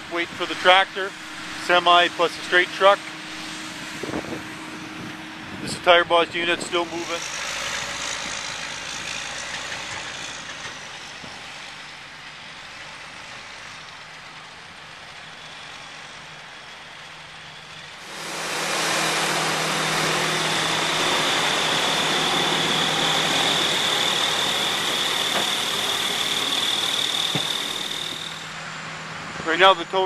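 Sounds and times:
dump truck engine humming: 0.0 - 30.0
hiss with high whine: 18.0 - 28.6.

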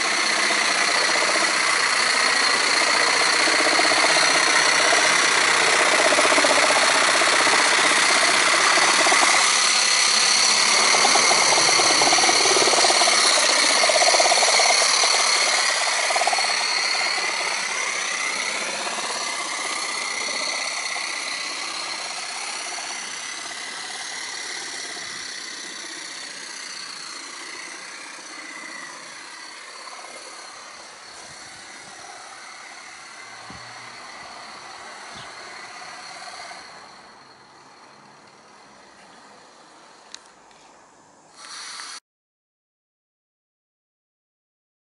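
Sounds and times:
model steam locomotive running: 0.0 - 40.2.

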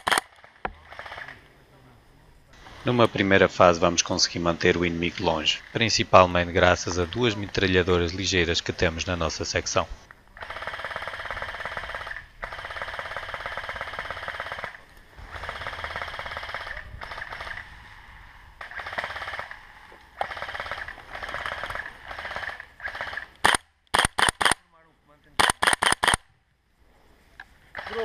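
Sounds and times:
airsoft machine gun bursts: 0.0 - 1.4, 10.4 - 17.8, 18.6 - 24.6, 25.4 - 26.2, 27.7 - 28.0.

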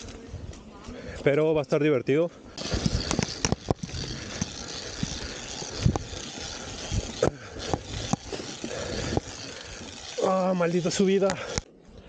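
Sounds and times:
tyre and wind noise: 2.5 - 12.0
bike wheels knocking on planks: 2.6 - 10.1.

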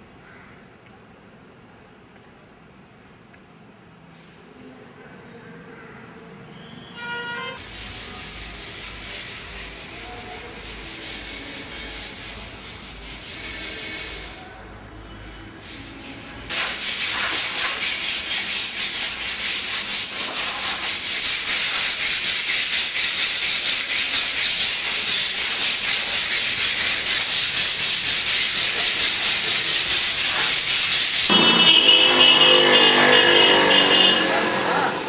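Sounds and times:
sandpaper rubbing on plaster wall: 7.6 - 14.6, 15.6 - 35.0.

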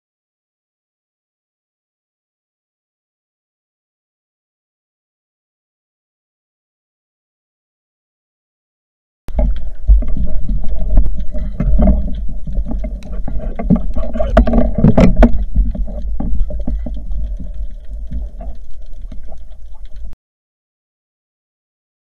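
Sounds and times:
knocks and clicks: 9.3 - 20.1
underwater rumble of moving water: 9.3 - 20.2.

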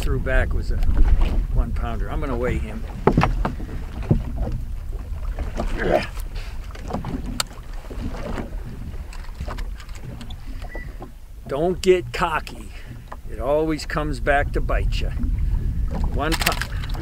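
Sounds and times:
water slapping a boat: 0.0 - 17.0
wind rumbling on microphone: 0.0 - 17.0
clicks and knocks of handling: 6.2 - 7.6, 9.1 - 10.7, 16.0 - 17.0.

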